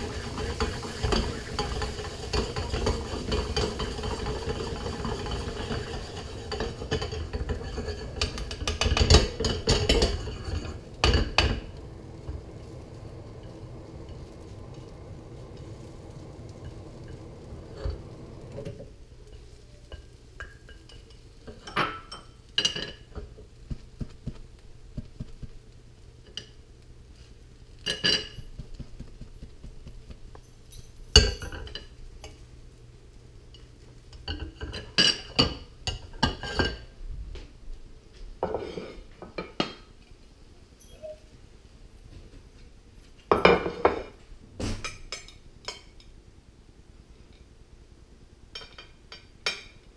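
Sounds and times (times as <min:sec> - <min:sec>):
low background noise: 0:00.0 - 0:49.9.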